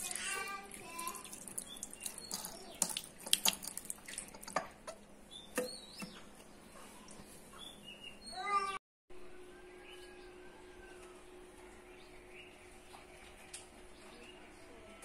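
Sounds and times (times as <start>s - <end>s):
tap water splashing on hands: 0.9s - 4.8s.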